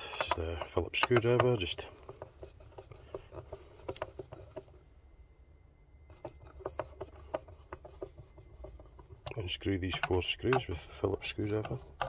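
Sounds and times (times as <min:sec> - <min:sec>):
screwdriver clicks and scrapes: 0:00.0 - 0:02.3.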